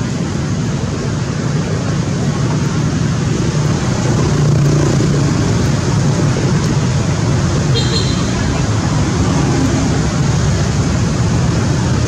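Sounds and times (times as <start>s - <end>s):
low rumble of road traffic: 0.0s - 12.0s
vehicle passing: 2.8s - 12.0s.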